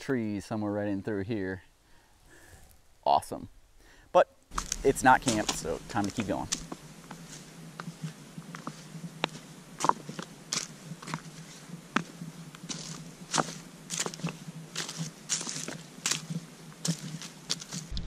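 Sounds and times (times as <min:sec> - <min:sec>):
footsteps crunching dry leaves: 0:04.5 - 0:18.0.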